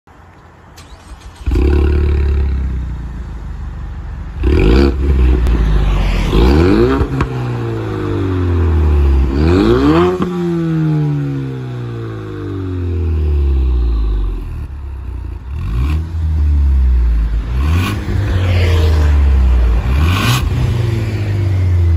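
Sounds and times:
car engine starting and revving: 0.7s - 21.9s.

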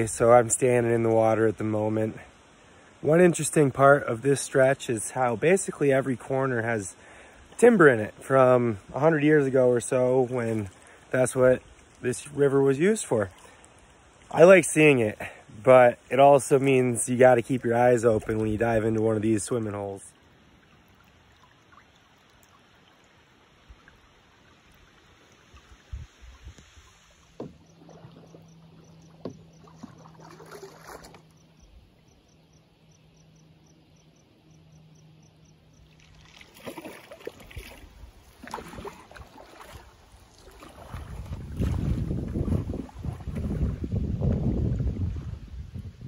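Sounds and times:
paddle strokes splashing water: 0.0s - 31.9s, 35.5s - 45.5s
water dripping off paddle: 9.8s - 12.2s, 20.2s - 31.7s, 35.7s - 43.6s.

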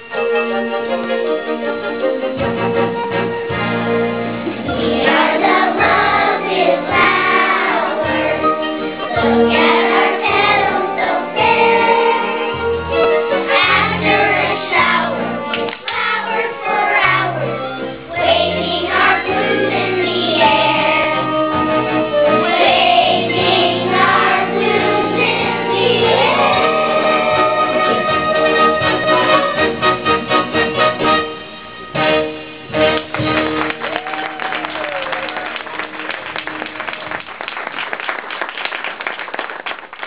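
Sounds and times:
children's chorus singing: 4.6s - 21.4s, 22.3s - 28.8s.

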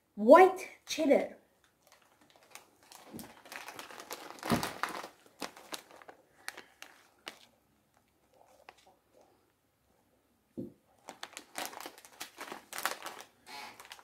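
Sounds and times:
plastic snack bag crinkling: 1.6s - 9.4s, 10.9s - 14.0s.

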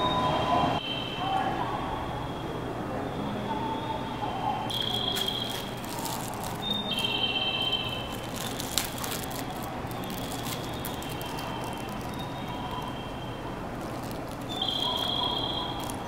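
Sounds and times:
faint high tones: 0.0s - 16.0s
plastic wrapper crinkling: 4.7s - 16.0s.

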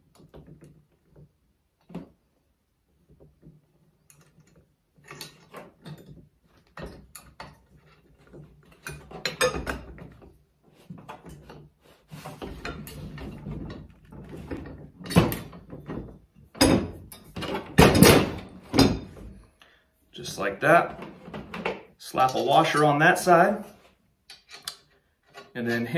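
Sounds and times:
metal clicks and knocks: 24.3s - 25.6s.

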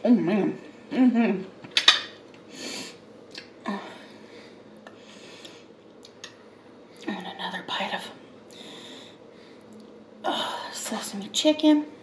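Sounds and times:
soft chewing clicks: 4.9s - 6.4s.

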